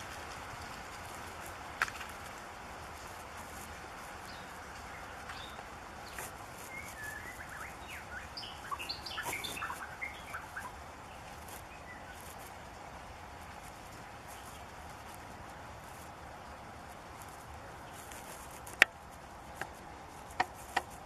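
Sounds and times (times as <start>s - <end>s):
background hiss: 0.0s - 21.0s
bird singing whistled notes: 6.6s - 12.3s.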